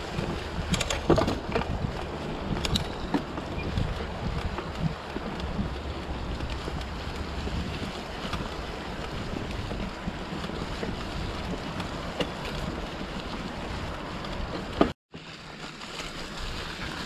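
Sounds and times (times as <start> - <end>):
wind noise on microphone: 0.0 - 15.0
bike rolling over dry leaves: 0.0 - 17.0.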